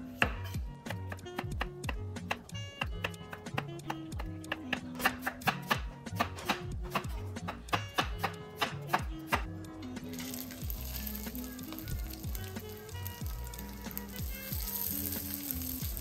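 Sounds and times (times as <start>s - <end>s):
soft background music: 0.0s - 16.0s
knife chopping on wooden board: 0.2s - 9.5s
cutlet frying in hot oil: 10.1s - 16.0s.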